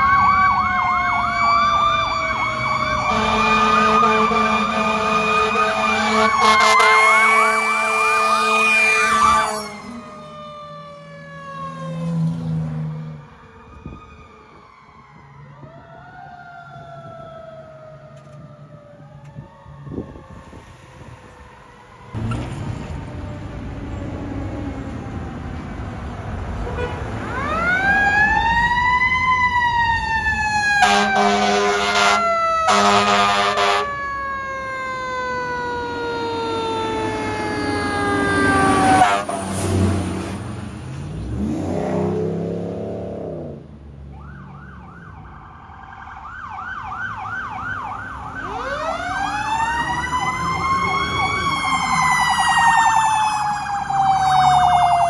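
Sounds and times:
electronic warble siren: 0.0s - 12.3s, 13.0s - 20.7s, 27.4s - 39.5s
wailing fire engine siren: 0.0s - 55.0s
air horn blasts: 3.0s - 9.9s, 26.6s - 27.1s, 30.8s - 34.0s, 38.8s - 39.6s.

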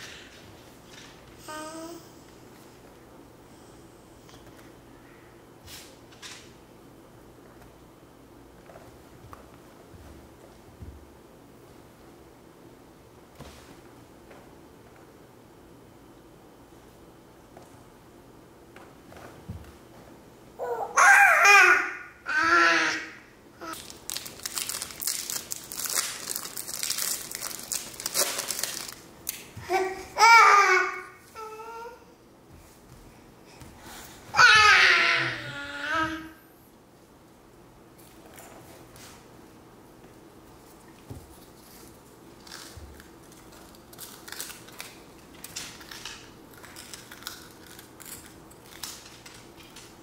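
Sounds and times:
baby babbling: 1.4s - 2.2s, 20.6s - 23.8s, 34.3s - 36.4s
plastic wrapper crinkling: 23.7s - 29.4s, 41.5s - 49.9s
crunching of wafers being chewed: 42.4s - 49.9s.

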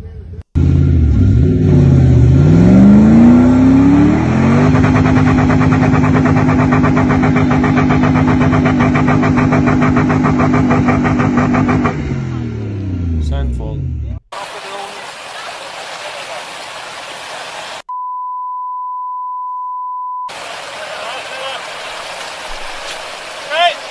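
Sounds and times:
suv engine revving: 0.5s - 15.2s.

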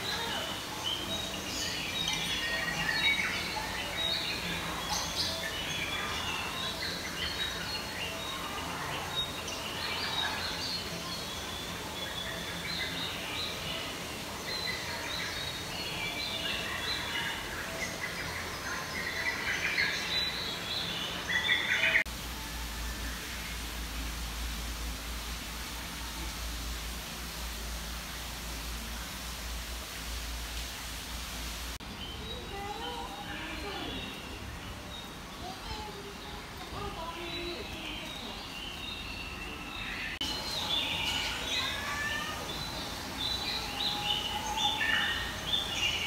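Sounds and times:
steady low hum and hiss: 0.0s - 46.0s
small birds chirping: 23.1s - 46.0s.

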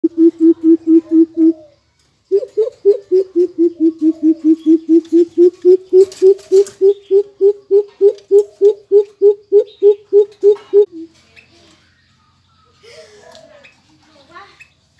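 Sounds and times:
bird deep hooting call: 0.0s - 1.7s.

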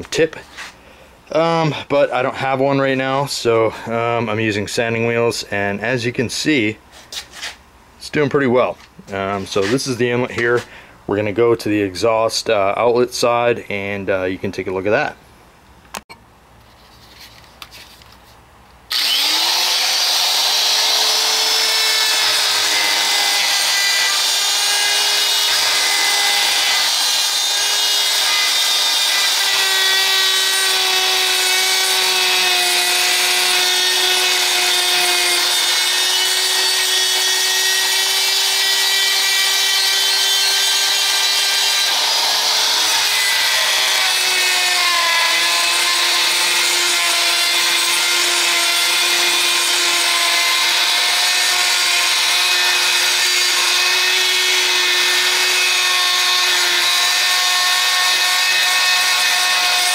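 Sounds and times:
rotary tool grinding metal: 18.9s - 59.9s.

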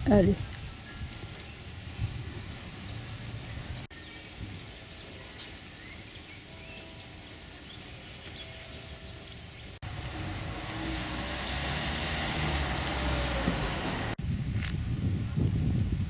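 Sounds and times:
street traffic noise: 0.0s - 14.8s
car passing with road rumble: 1.7s - 3.9s, 9.3s - 14.2s.

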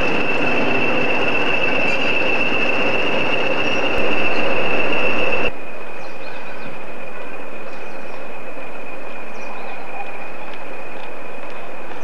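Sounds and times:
diesel locomotive turbocharger whistle: 0.0s - 5.5s.

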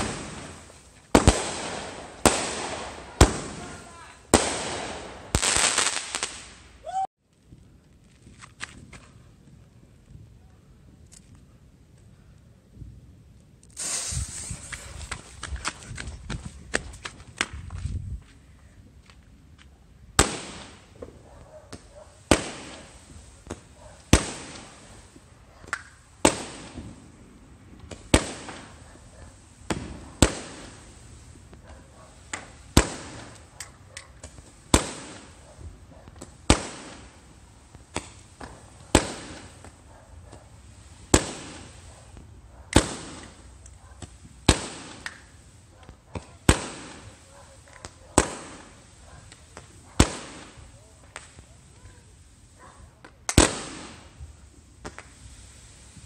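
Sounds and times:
fireworks bangs: 0.0s - 6.7s, 13.8s - 15.7s, 20.2s - 33.5s, 34.1s - 52.1s, 53.2s - 56.0s
small firework pops: 13.6s - 17.8s, 19.6s - 24.9s, 25.6s - 27.1s, 27.8s - 30.9s, 31.5s - 52.1s, 53.0s - 55.3s.

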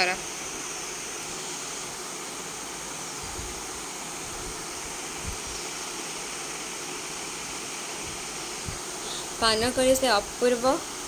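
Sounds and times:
room noise hiss: 0.0s - 11.0s.

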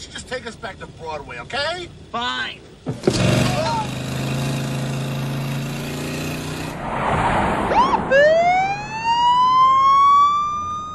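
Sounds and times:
vehicle engine running: 0.0s - 6.8s
police siren wailing: 7.7s - 10.9s.

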